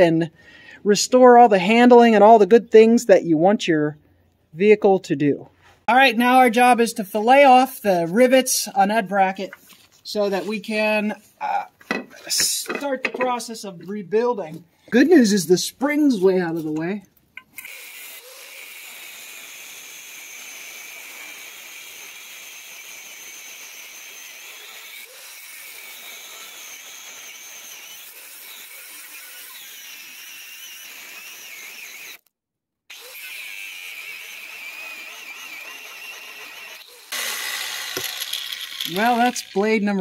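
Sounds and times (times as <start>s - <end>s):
angle grinder cutting metal: 17.4s - 32.2s, 32.9s - 40.0s.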